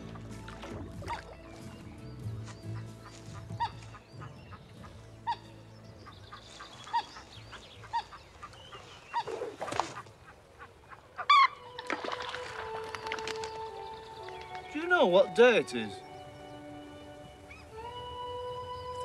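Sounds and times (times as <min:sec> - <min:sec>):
waterfowl honking calls: 0:00.0 - 0:19.0
brief rustle: 0:11.8 - 0:13.8.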